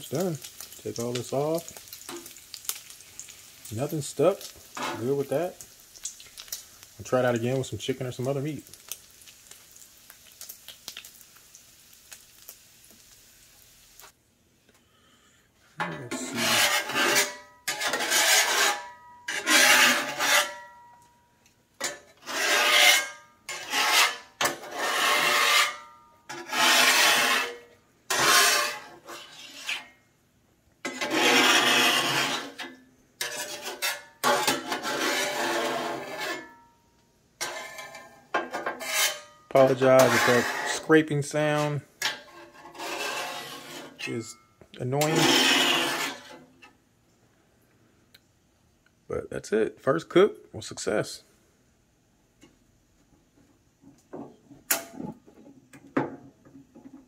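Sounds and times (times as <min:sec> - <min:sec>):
faint grease sizzle: 0:00.0 - 0:14.2
metal spatula scraping griddle: 0:04.0 - 0:05.5, 0:15.8 - 0:20.9, 0:21.8 - 0:30.0, 0:30.8 - 0:36.7, 0:37.4 - 0:46.8.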